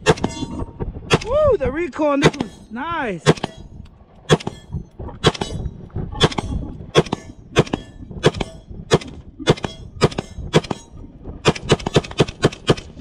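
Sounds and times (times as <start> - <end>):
rifle shots: 3.2 - 3.6, 6.2 - 10.8, 11.4 - 13.0.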